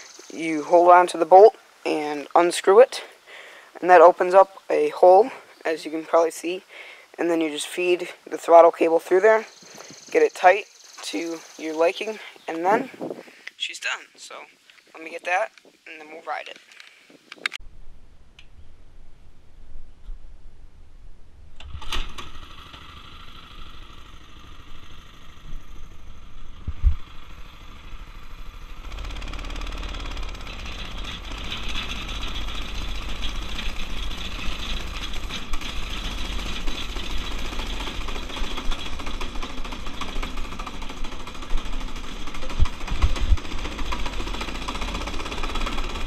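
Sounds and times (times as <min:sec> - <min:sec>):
pull-start cord: 0:21.6 - 0:23.9, 0:28.8 - 0:46.0
go-kart engine running: 0:21.7 - 0:46.0.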